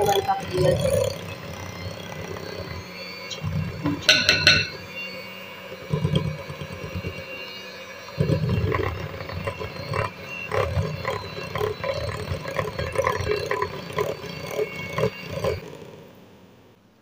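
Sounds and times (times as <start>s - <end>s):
electric hand mixer motor humming: 0.0s - 15.9s
beaters knocking against glass bowl: 3.8s - 4.8s.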